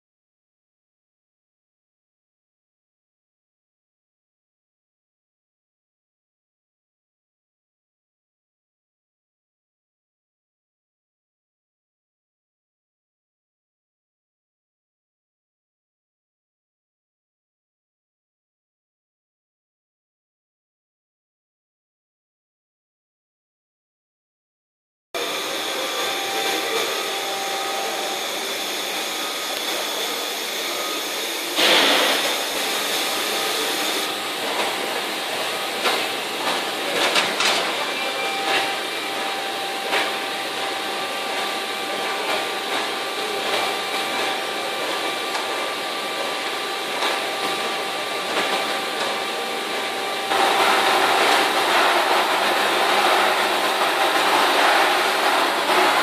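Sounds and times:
loud rushing noise: 0:25.2 - 0:34.3, 0:50.3 - 0:56.0
stone-working machine whine: 0:25.2 - 0:56.0.

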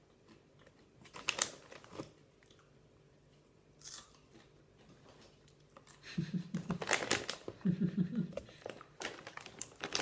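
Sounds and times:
light chewing: 0:00.0 - 0:01.2
crisp packet rustling: 0:01.1 - 0:02.2, 0:06.7 - 0:07.6, 0:08.6 - 0:10.0.

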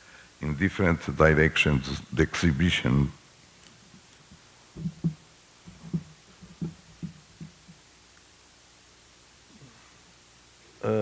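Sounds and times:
microphone handling thumps: 0:04.8 - 0:07.8.

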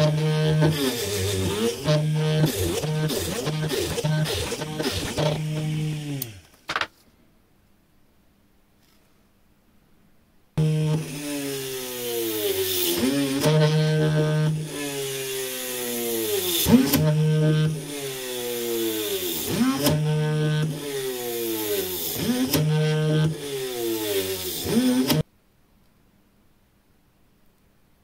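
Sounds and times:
small electric motor running: 0:00.0 - 0:06.5, 0:10.6 - 0:25.2.

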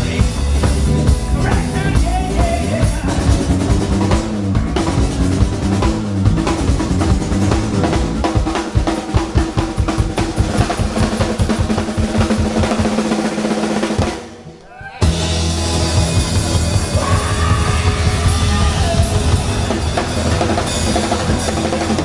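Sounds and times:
fast drum strokes: 0:00.0 - 0:14.4, 0:15.0 - 0:22.0
live rock band: 0:00.0 - 0:22.0.

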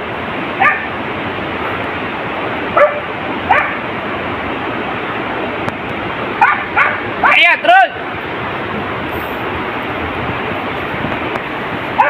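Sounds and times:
steady hiss: 0:00.0 - 0:12.0
dogs yelping: 0:06.4 - 0:07.4.

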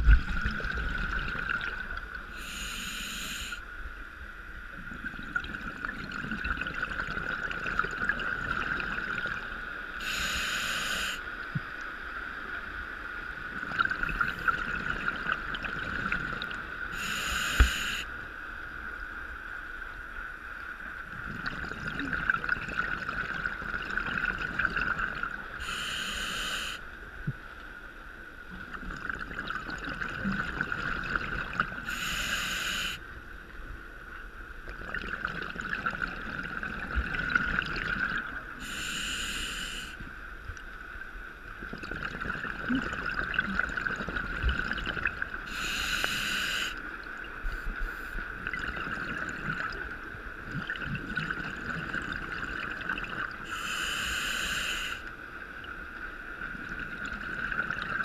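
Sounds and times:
bubbles rushing from regulator: 0:00.0 - 0:02.2, 0:04.9 - 0:09.5, 0:13.6 - 0:16.6, 0:21.2 - 0:25.5, 0:28.6 - 0:31.8, 0:34.7 - 0:38.4, 0:41.6 - 0:45.5, 0:48.4 - 0:53.5, 0:56.5 - 0:58.0
steady hum: 0:00.0 - 0:05.9, 0:13.8 - 0:20.1, 0:25.3 - 0:28.0, 0:38.0 - 0:42.8, 0:45.3 - 0:51.3.

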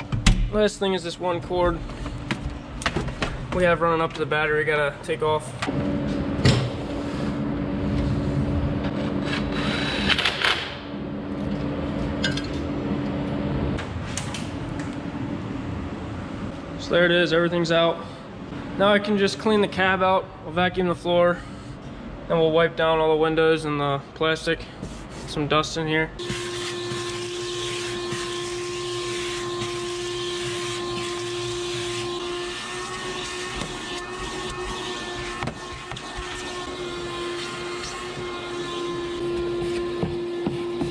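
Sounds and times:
vacuum cleaner running: 0:26.2 - 0:40.9.

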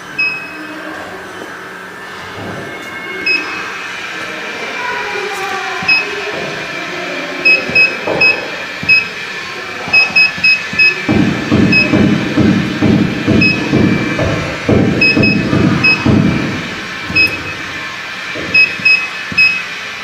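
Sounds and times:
steady machine hum: 0:00.0 - 0:20.0
short high beeps: 0:05.8 - 0:06.1, 0:07.4 - 0:09.1, 0:09.9 - 0:11.0, 0:18.6 - 0:19.6.

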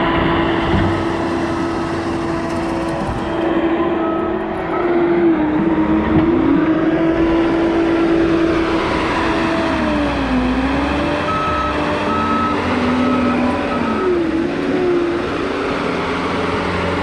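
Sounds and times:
diesel engine under load: 0:00.0 - 0:17.0
backup alarm beeping: 0:04.0 - 0:05.1, 0:11.2 - 0:14.4.

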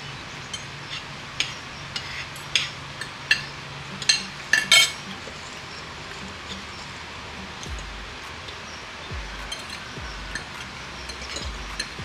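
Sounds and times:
utensils clinking on dishes: 0:00.5 - 0:05.6, 0:09.4 - 0:12.0.

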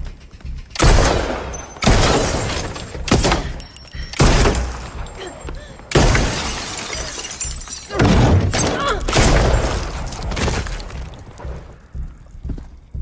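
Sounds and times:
glass shattering: 0:06.0 - 0:11.0.

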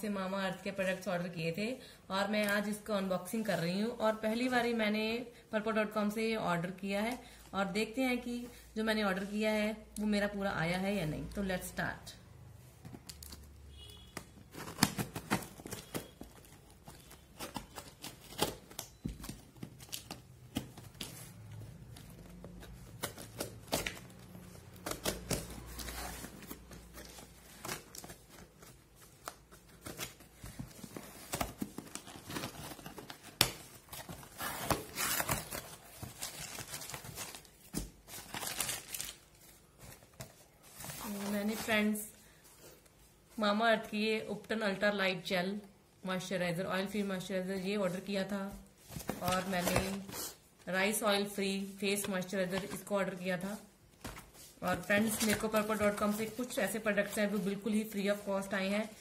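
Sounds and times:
paper packing crinkling: 0:14.4 - 0:41.7.

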